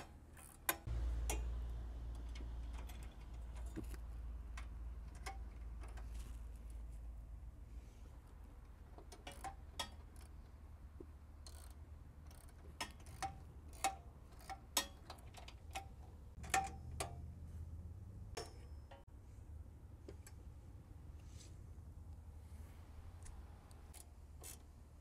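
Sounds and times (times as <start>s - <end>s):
socket ratchet clicking: 11.4s - 17.1s.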